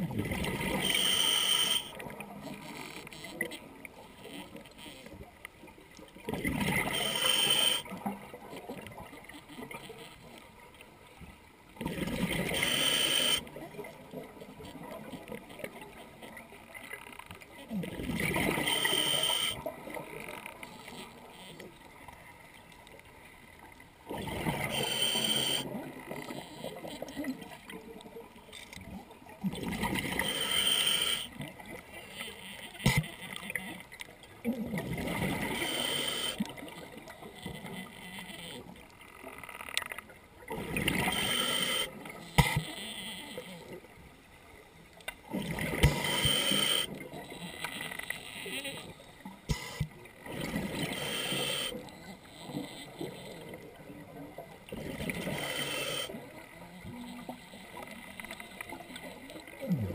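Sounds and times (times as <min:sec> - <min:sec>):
exhaled bubbles gurgling: 0:00.0 - 0:02.5, 0:06.2 - 0:09.0, 0:11.8 - 0:15.9, 0:17.7 - 0:20.2, 0:24.1 - 0:28.3, 0:28.9 - 0:31.9, 0:34.4 - 0:37.8, 0:40.4 - 0:42.7, 0:45.2 - 0:47.4, 0:49.2 - 0:59.9
regulator hissing on inhale: 0:00.8 - 0:01.9, 0:06.9 - 0:07.8, 0:12.5 - 0:13.4, 0:18.6 - 0:19.6, 0:24.7 - 0:25.6, 0:30.2 - 0:31.3, 0:35.6 - 0:36.4, 0:41.1 - 0:41.9, 0:45.9 - 0:46.9, 0:50.8 - 0:51.8, 0:55.3 - 0:56.1.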